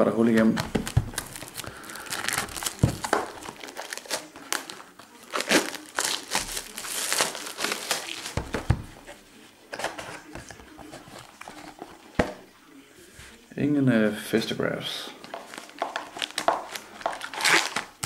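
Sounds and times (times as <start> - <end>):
plastic shrink wrap crinkling: 0.0 - 9.3, 15.2 - 18.0.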